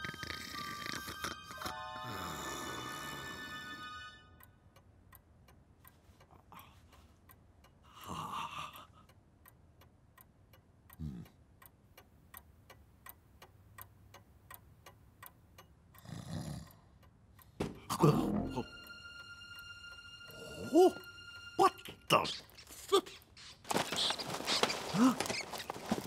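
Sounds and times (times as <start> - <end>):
held musical chord: 1.5 - 4.4, 17.9 - 22.2
clock ticking: 4.4 - 23.4.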